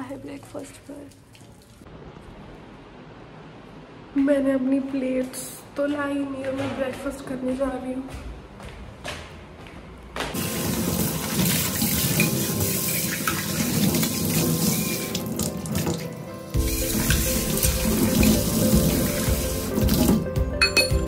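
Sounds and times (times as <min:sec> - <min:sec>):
tap running into sink: 0:16.6 - 0:20.2.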